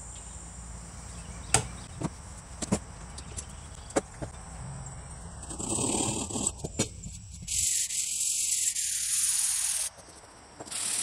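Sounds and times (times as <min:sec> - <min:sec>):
faint steady hum: 0:00.0 - 0:08.5.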